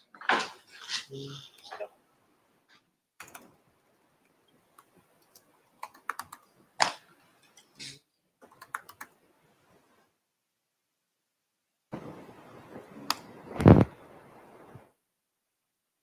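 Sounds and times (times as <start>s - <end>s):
computer keyboard typing: 3.2s - 3.6s, 4.8s - 6.5s, 8.4s - 9.2s.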